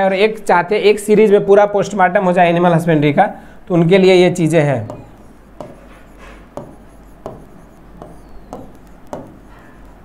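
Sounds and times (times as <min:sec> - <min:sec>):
pen tapping and scratching on board: 0:04.8 - 0:10.0.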